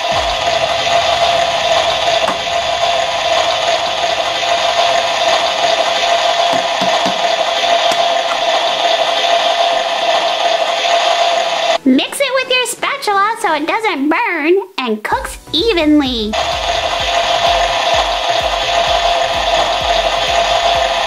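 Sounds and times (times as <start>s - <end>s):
toy cooker hissing with hum: 3.3s - 11.8s, 16.4s - 21.0s.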